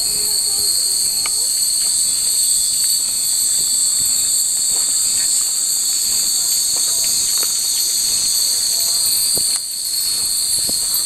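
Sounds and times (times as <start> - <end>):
cicadas droning: 0.0 - 11.0
glass wind chimes tinkling: 0.0 - 11.0.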